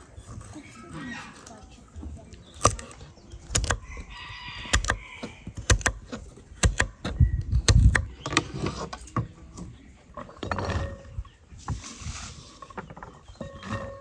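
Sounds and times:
knocks and clicks of objects handled: 2.6 - 3.8, 4.6 - 11.2.

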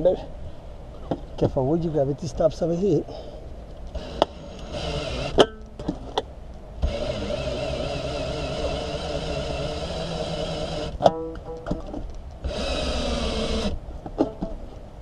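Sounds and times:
small electric motor running: 3.9 - 5.4, 6.8 - 11.0, 12.4 - 13.8.

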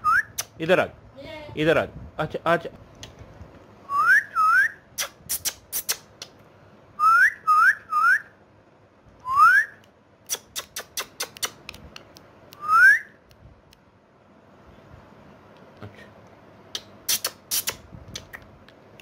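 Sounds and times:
parakeet whistling: 3.9 - 4.8, 7.0 - 8.3
parakeet sharp clicks: 10.3 - 12.3.

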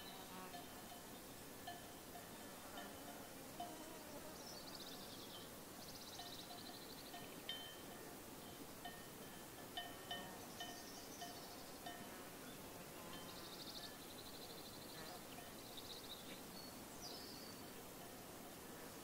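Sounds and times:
sheep bells clinking: 0.0 - 3.8, 5.2 - 12.2.

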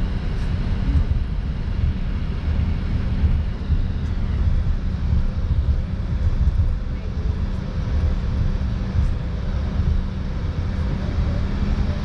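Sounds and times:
jet engines idling: 0.0 - 12.0.

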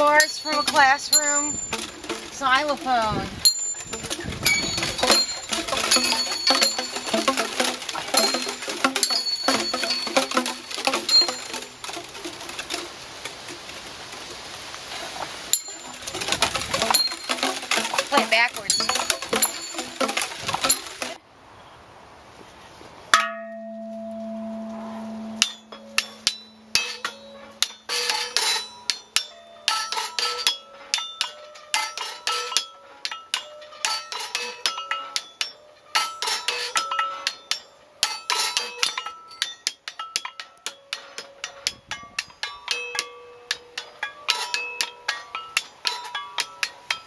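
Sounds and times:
clanging metal percussion hits: 0.0 - 13.6, 15.5 - 21.2, 23.1 - 47.0
deep humming metal note: 23.5 - 27.4.

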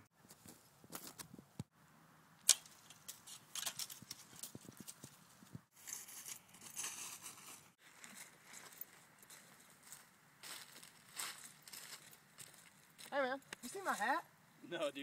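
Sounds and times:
footsteps crunching through dry leaves: 3.9 - 13.2.

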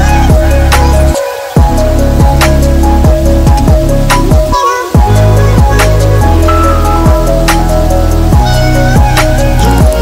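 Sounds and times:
held bass notes: 0.0 - 10.0
bass drum hits: 1.6 - 9.2.

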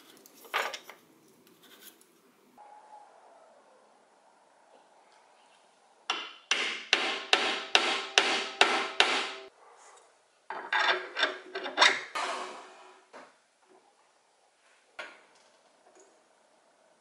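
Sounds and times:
mallet tapping metal into wood: 6.1 - 9.4.

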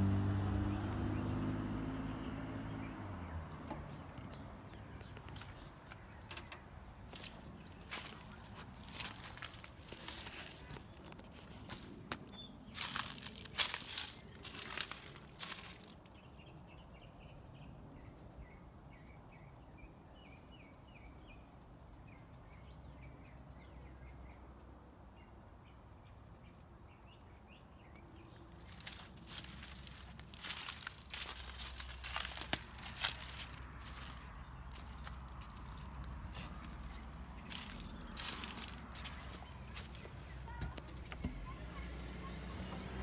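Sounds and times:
small birds chirping: 0.6 - 43.0
footsteps crunching dry leaves: 7.0 - 16.1, 28.4 - 41.6.

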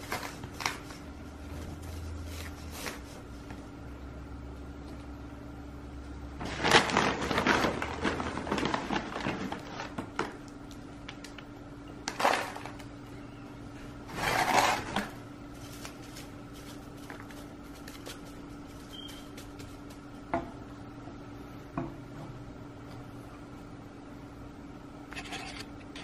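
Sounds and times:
faint steady hum: 0.0 - 26.0
hands rustling potting mix: 15.5 - 20.2.

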